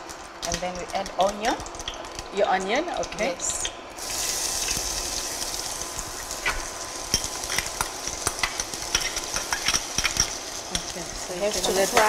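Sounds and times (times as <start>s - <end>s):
onion sizzling in hot oil: 0.0s - 12.0s.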